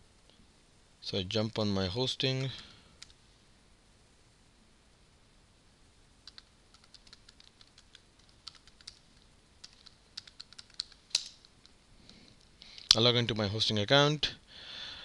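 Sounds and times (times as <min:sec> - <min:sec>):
faint keyboard typing: 0:02.3 - 0:03.2, 0:06.2 - 0:13.1.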